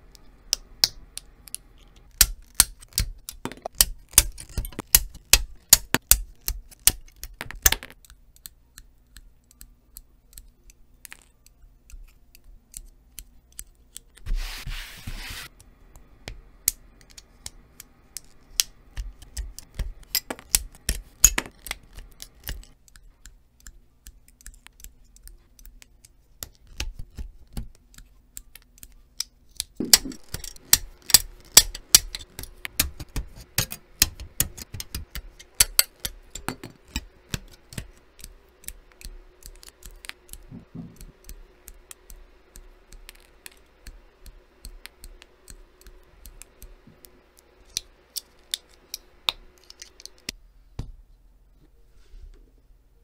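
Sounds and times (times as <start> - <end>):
nippers snipping plastic: 0.1 - 14.2, 16.6 - 50.4.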